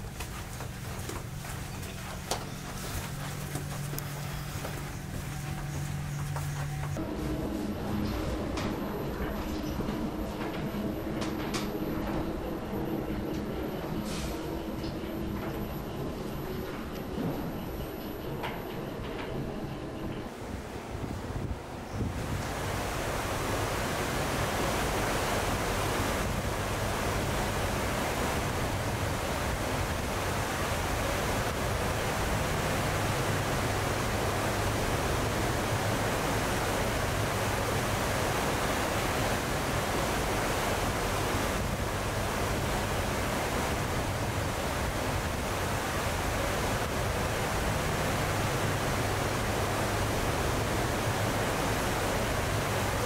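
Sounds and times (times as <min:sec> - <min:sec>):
churning wake water: 0:20.3 - 0:53.0.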